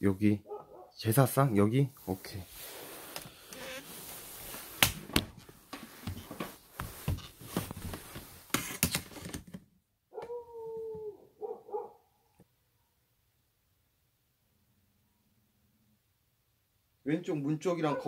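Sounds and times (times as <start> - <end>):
howling cry: 10.2 - 11.3.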